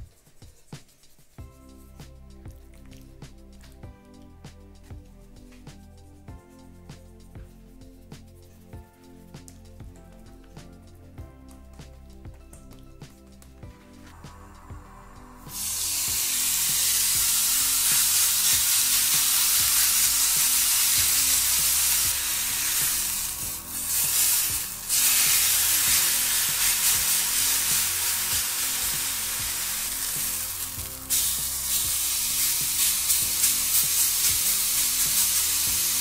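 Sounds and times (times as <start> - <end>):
meat sizzling on grill pan: 15.5 - 36.0.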